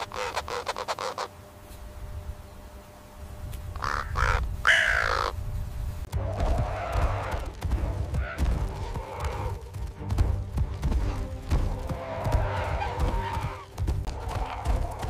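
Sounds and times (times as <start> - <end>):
muffled squawking: 0.0 - 1.5, 3.7 - 5.4, 11.8 - 15.0
crow cawing: 3.8 - 5.4.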